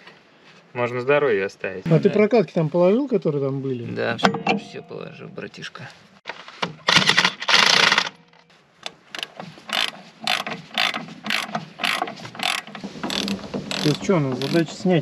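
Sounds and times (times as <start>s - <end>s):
ratchet wrench clicking: 9.2s - 14.6s.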